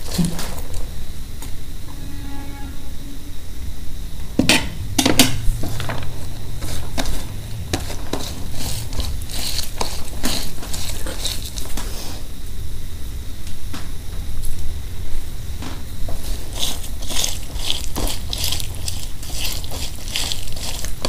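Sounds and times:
fingers mixing onion on steel plate: 6.6s - 12.1s, 16.2s - 21.0s.

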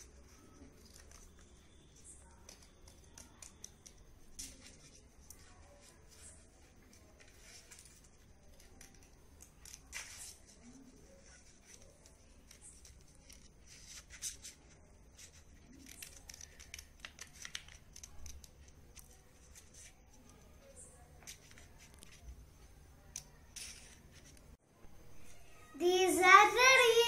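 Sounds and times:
scissors snipping paper: 2.2s - 5.9s, 6.9s - 14.6s, 15.2s - 20.5s.

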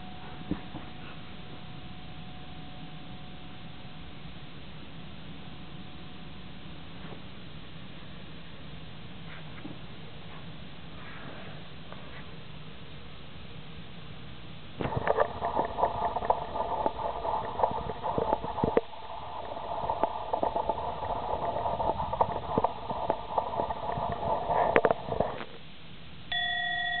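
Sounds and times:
brass bell ringing: 26.3s - 27.0s.

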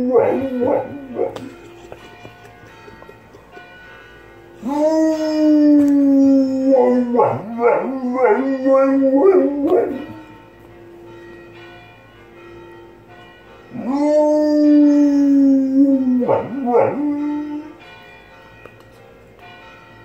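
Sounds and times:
dog howling: 0.0s - 1.5s, 4.6s - 10.2s, 13.8s - 17.8s
church bells ringing: 0.0s - 20.0s.

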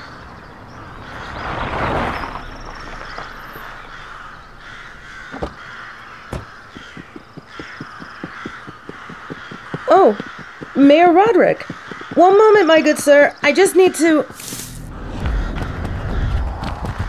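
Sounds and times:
crows cawing: 0.0s - 1.6s, 2.4s - 17.0s
rushing noise: 0.0s - 6.7s
sharp knocks: 5.1s - 12.8s.

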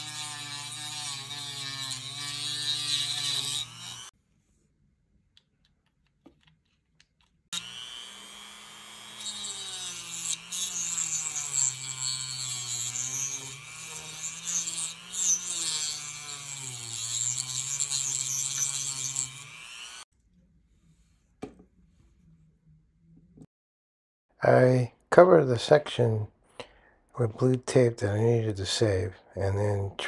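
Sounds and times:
cut-off wheel grinding metal: 0.0s - 4.1s, 7.6s - 20.0s
rotary tool motor whine: 0.0s - 4.1s, 7.6s - 20.1s.

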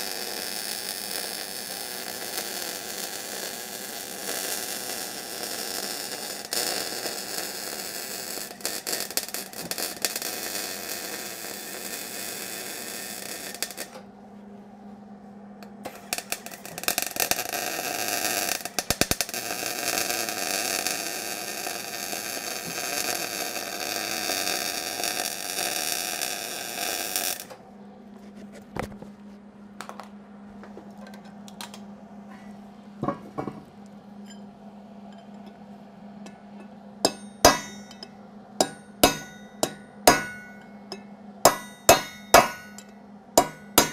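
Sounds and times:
welder arc crackling: 0.0s - 14.0s, 15.8s - 27.6s, 37.0s - 43.9s
low hum: 27.5s - 43.9s.

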